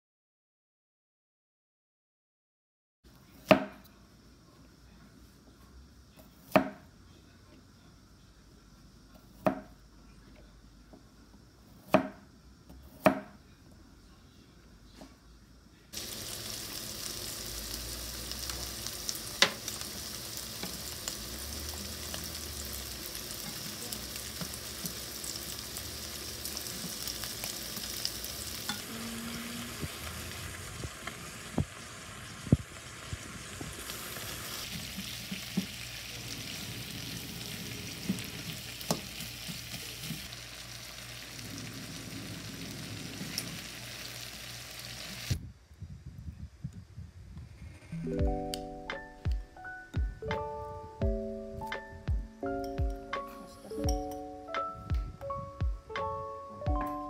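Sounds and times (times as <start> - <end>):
knife chopping on wooden board: 6.4 - 6.8, 11.8 - 12.2, 12.9 - 13.4
meat sizzling in a pan: 16.0 - 45.4.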